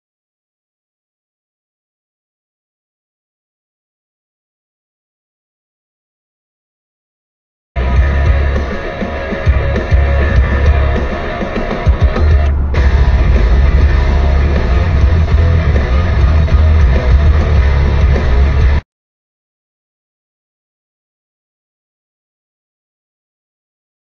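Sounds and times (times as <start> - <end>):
loud rock music: 7.8 - 18.8.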